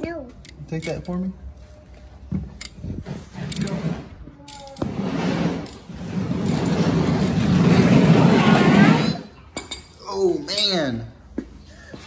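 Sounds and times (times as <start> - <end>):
casters rolling on concrete: 2.8 - 12.0.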